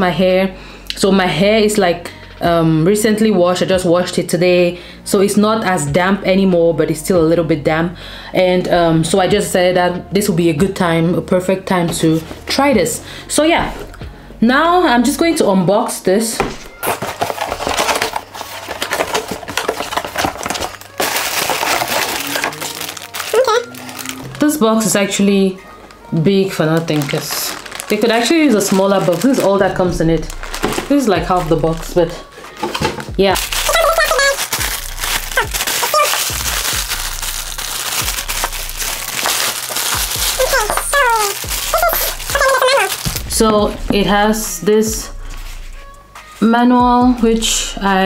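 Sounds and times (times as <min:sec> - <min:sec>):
cardboard box crackling: 0:16.8 - 0:24.4, 0:26.8 - 0:31.9, 0:32.6 - 0:43.5.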